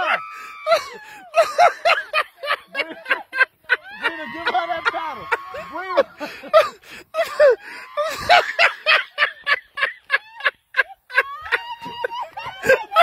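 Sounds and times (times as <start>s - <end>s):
people cackling laughter: 0.0s - 13.0s.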